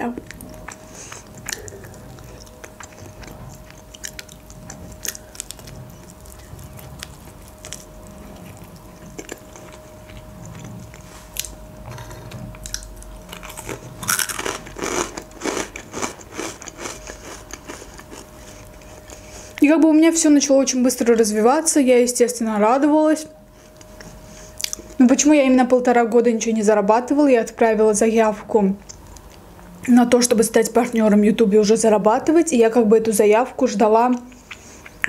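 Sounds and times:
faint steady hum: 0:00.0 - 0:35.0
chewing crunchy fried chicken: 0:00.2 - 0:19.6, 0:34.1 - 0:35.0.

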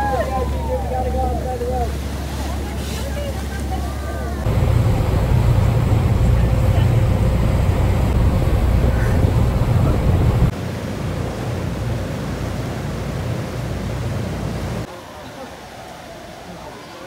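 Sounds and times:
boat engine rumble: 0:00.0 - 0:17.0
churning wake water: 0:00.0 - 0:17.0
wind buffeting microphone: 0:04.4 - 0:10.5.

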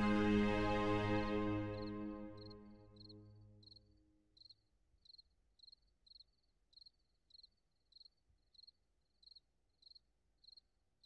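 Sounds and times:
background music: 0:00.0 - 0:04.3
cricket chirping: 0:02.4 - 0:10.7.

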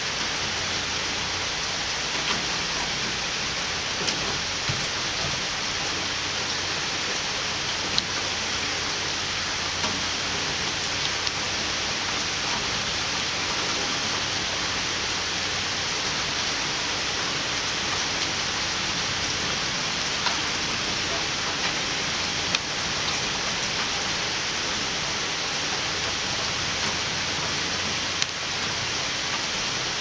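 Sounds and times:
rain on wooden deck: 0:00.0 - 0:30.0.

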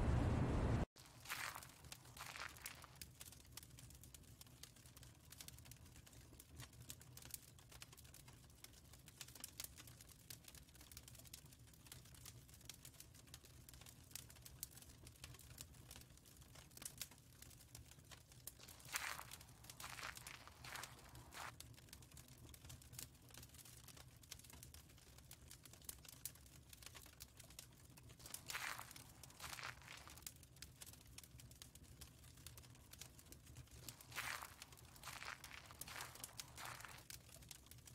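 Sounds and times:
faint low hum: 0:00.0 - 0:00.9
soft clicks and crackles: 0:00.1 - 0:37.9.

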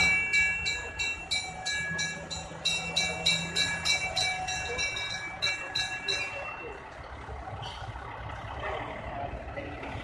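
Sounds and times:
fire engine bell ringing: 0:00.0 - 0:08.1
fire engine engine running: 0:00.0 - 0:10.0.

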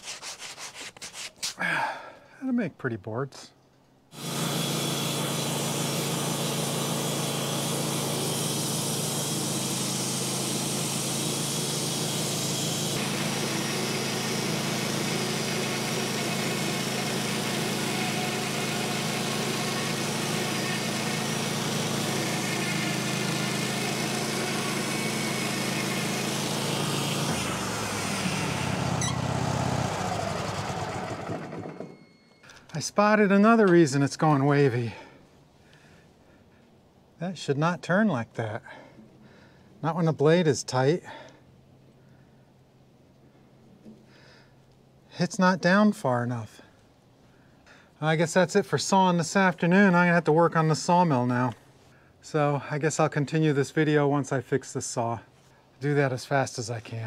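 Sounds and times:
band saw blade cutting log: 0:00.0 - 0:01.6, 0:04.1 - 0:32.0, 0:48.3 - 0:51.5
sawmill engine running under load: 0:04.2 - 0:32.3.

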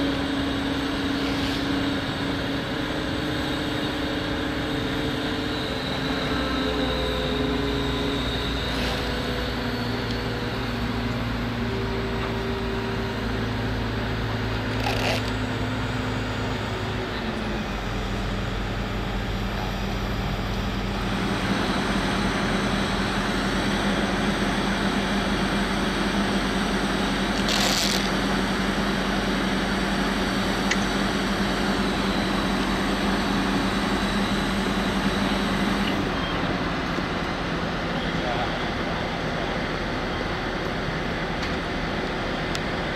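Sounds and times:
diesel engine running: 0:00.0 - 0:42.9.

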